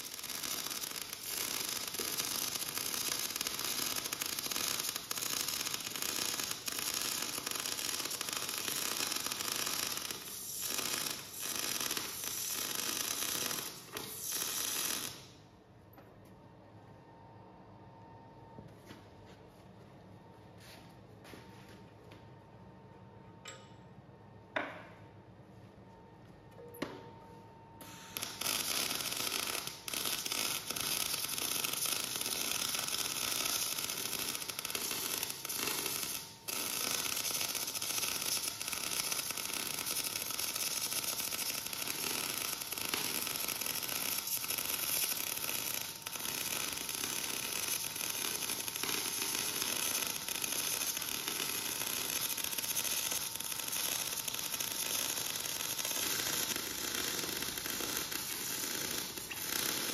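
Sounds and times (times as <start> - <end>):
welding arc crackling: 0.0 - 15.4, 27.8 - 59.9.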